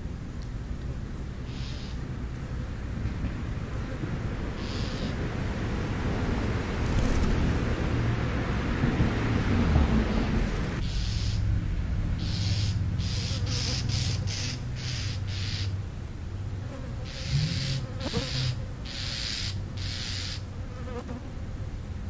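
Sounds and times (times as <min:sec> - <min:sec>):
insect buzzing: 0:12.2 - 0:15.8, 0:16.7 - 0:21.2
short hissy pulses: 0:17.0 - 0:20.4.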